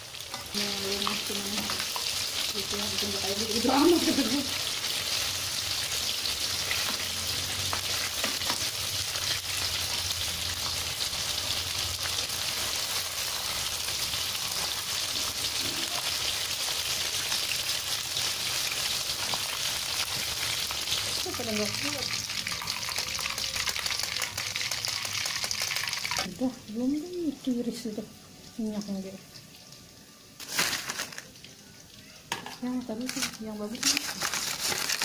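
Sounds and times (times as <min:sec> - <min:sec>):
food deep-frying in oil: 0:00.0 - 0:35.0.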